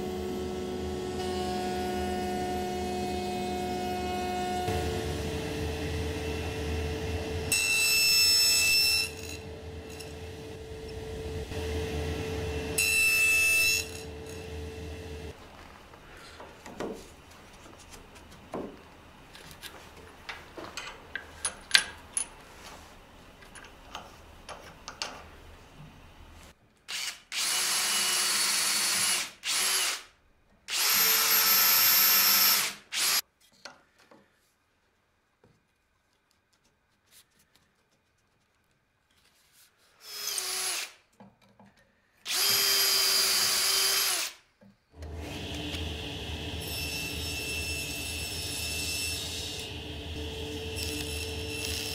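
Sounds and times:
electric drill boring wood: 0.0s - 15.3s, 26.9s - 30.0s, 30.7s - 33.2s, 40.0s - 41.0s, 42.3s - 44.4s, 45.0s - 51.9s.

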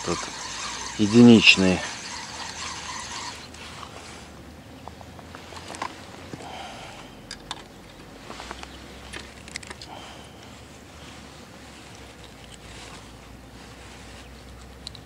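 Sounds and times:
hands handling fishing line: 11.7s - 13.4s.

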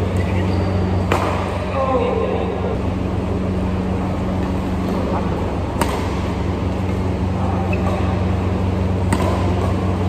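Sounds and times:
steady low hum: 0.0s - 10.0s
racket hitting shuttlecock: 1.0s - 1.7s, 5.6s - 8.4s, 9.0s - 10.0s.

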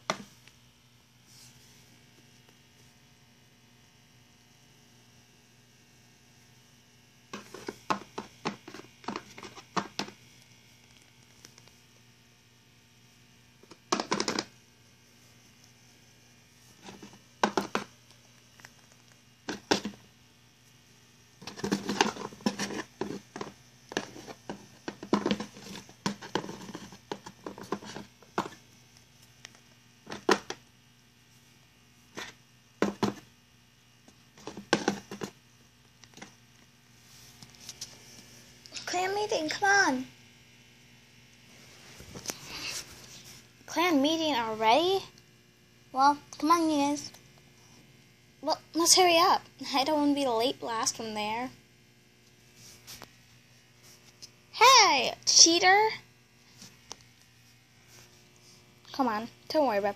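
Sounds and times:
plastic toys tapping on cardboard: 13.9s - 14.5s, 17.0s - 17.9s, 32.8s - 33.2s.

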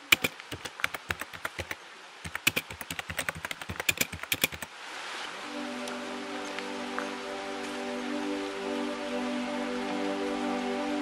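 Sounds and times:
key typing clicks: 0.0s - 4.7s
rain-like hiss: 0.0s - 11.0s
music: 5.3s - 11.0s.

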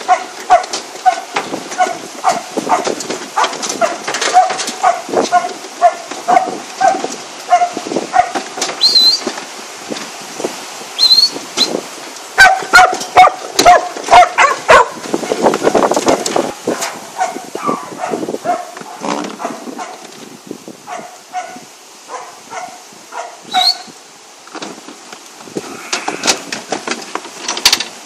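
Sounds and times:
dog barking: 0.0s - 8.4s, 12.4s - 15.0s, 16.7s - 20.0s, 20.9s - 23.8s.

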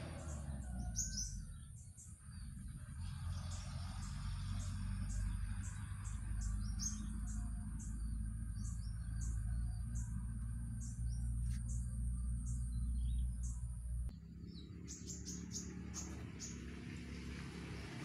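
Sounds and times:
bird chirping: 0.0s - 17.0s
low rumble: 5.0s - 14.7s.

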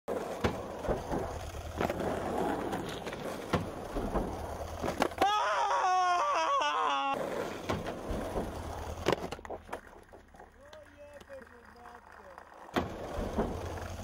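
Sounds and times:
skateboard clacks: 0.1s - 14.0s
skateboard wheels rolling on asphalt: 0.1s - 14.0s
wavering vocal cry: 5.2s - 7.2s.

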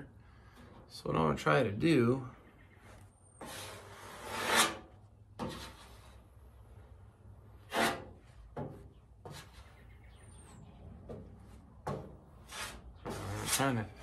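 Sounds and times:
spreader scraping body filler: 7.5s - 8.2s, 12.4s - 14.0s.

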